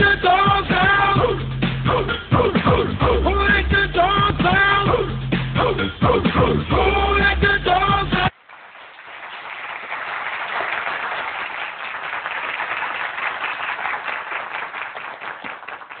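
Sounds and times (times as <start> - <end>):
audience applause: 8.3 - 16.0.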